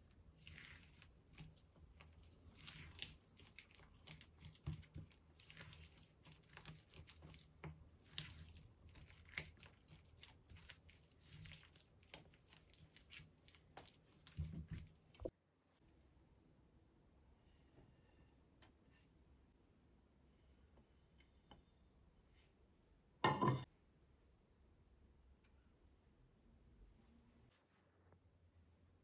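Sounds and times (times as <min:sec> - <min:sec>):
spatula scraping a ceramic bowl: 0:00.1 - 0:15.3.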